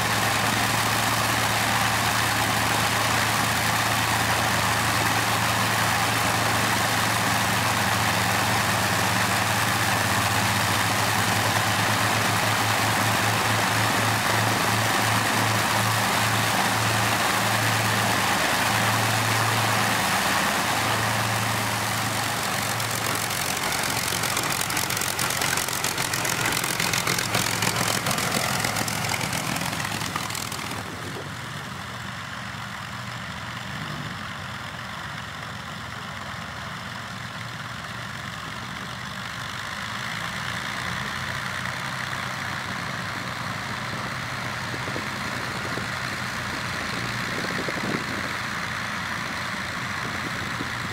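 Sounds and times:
aircraft engines droning: 0:00.0 - 0:32.8.

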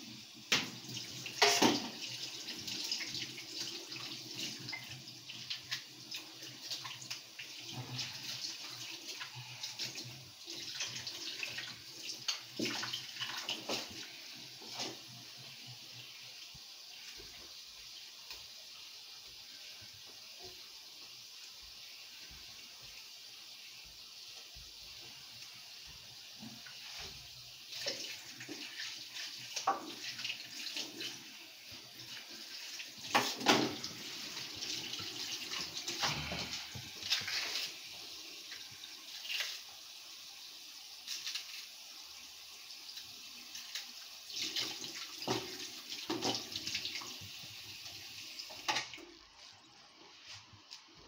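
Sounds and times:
tap running into sink: 0:01.4 - 0:02.1.

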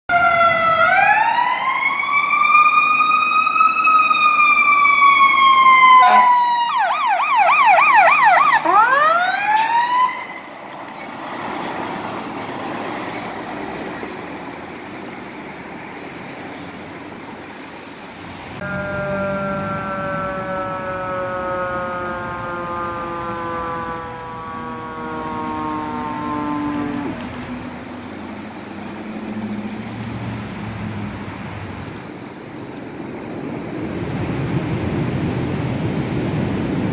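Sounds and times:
siren yelp: 0:00.1 - 0:10.5, 0:18.6 - 0:28.4
distant siren: 0:00.1 - 0:31.2
emergency vehicle sirens wailing: 0:00.1 - 0:36.9
traffic noise: 0:00.1 - 0:36.9.

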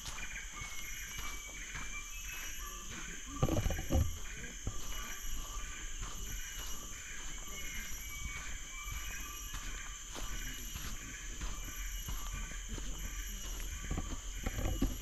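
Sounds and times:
chirps: 0:00.0 - 0:15.0
high insect drone: 0:00.0 - 0:15.0.

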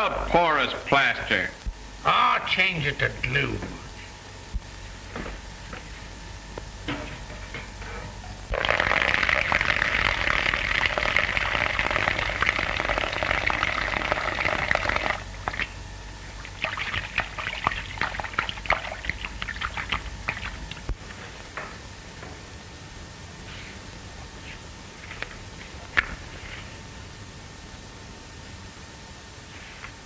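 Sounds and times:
small water drips: 0:16.4 - 0:20.9.

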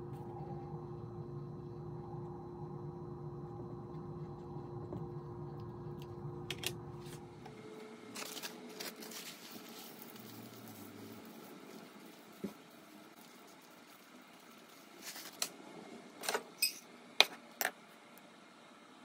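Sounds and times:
steady low hum: 0:00.0 - 0:16.2
plastic bag crinkling: 0:08.1 - 0:12.4.

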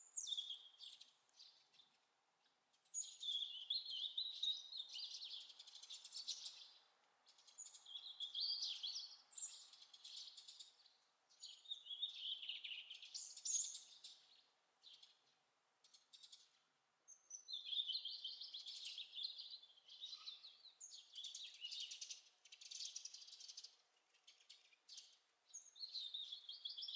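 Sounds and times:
robin singing: 0:00.0 - 0:26.9.

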